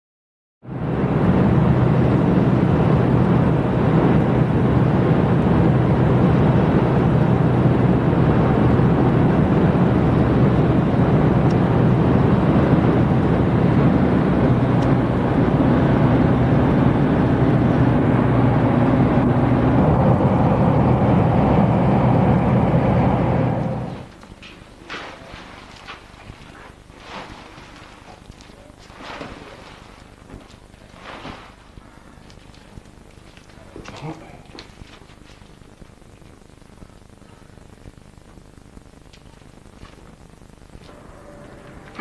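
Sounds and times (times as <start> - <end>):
car engine drone: 0.6 - 24.2, 36.0 - 42.0
constant low hum: 0.6 - 42.0
road noise inside car: 0.7 - 25.3, 39.6 - 42.0.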